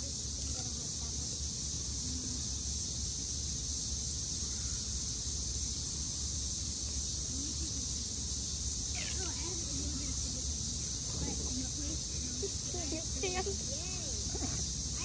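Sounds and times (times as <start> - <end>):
high-pitched insect chorus: 0.0 - 15.0
low even rumble: 10.8 - 15.0.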